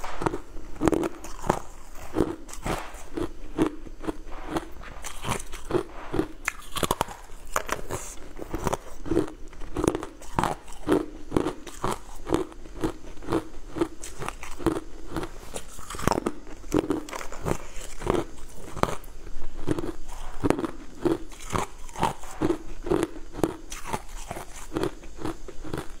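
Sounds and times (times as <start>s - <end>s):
crunching frozen ice pieces: 0.0s - 19.1s.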